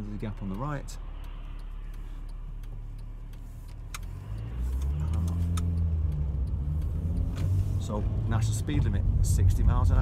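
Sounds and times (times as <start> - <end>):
car engine idling and revving: 0.0 - 10.0.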